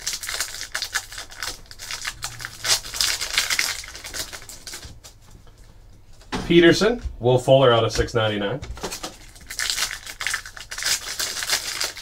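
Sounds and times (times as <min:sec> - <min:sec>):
plastic wrapper crinkling: 0:00.0 - 0:05.2, 0:08.8 - 0:12.0.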